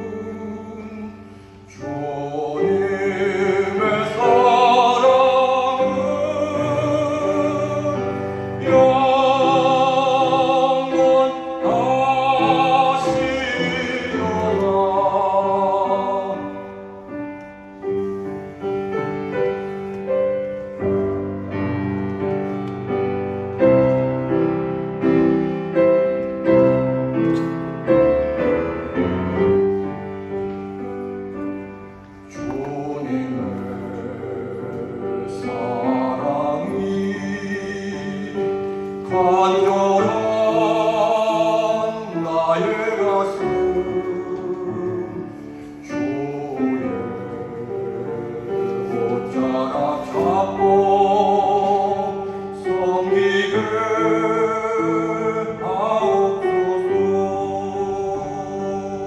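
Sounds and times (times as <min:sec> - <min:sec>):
man singing into microphone: 0:00.0 - 0:17.1, 0:31.8 - 0:59.0
grand piano playing: 0:00.0 - 0:59.0.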